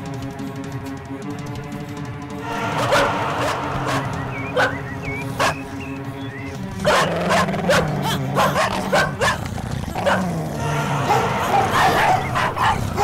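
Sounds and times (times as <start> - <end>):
low music drone: 0.0 - 13.0
dogs barking aggressively: 2.6 - 13.0
dog yelps: 4.6 - 4.8, 6.8 - 9.4, 10.0 - 10.2, 11.1 - 13.0.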